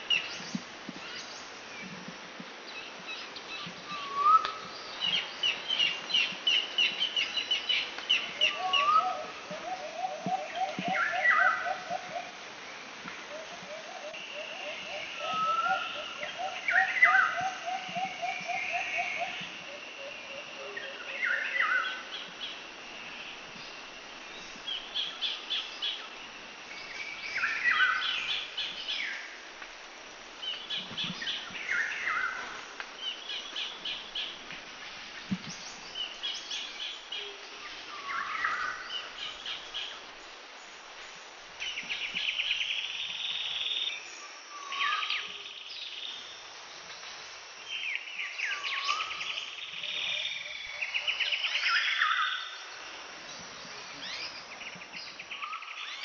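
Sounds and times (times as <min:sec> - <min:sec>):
steady background hiss: 0:00.0 - 0:56.0
birds chirping: 0:47.7 - 0:56.0.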